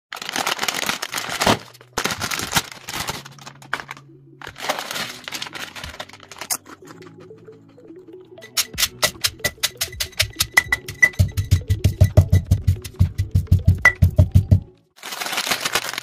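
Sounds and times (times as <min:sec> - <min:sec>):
chip bag crinkling: 0:00.1 - 0:07.0, 0:15.0 - 0:16.0
chips rustling: 0:00.1 - 0:07.5, 0:15.0 - 0:16.0.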